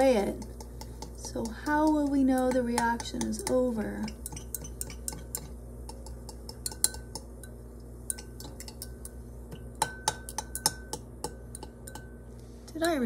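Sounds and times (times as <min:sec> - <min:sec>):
stirring rod clinking in glass beaker: 0:01.8 - 0:09.1, 0:09.8 - 0:13.0.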